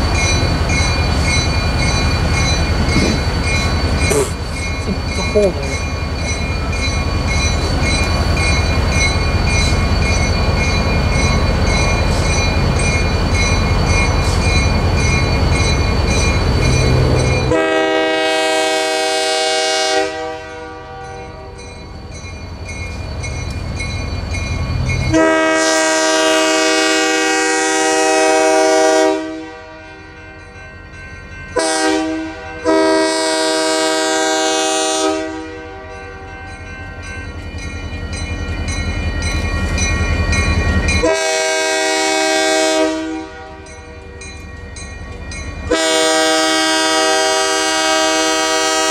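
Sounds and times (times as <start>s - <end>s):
locomotive air horn: 17.5s - 21.6s, 25.1s - 30.0s, 31.6s - 36.0s, 41.0s - 43.6s, 45.7s - 48.9s.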